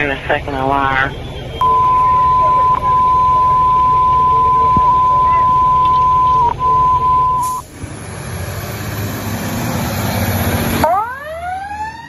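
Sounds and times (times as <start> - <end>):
fire engine rushing: 0.0 - 12.0
radio alert tone: 1.6 - 7.6.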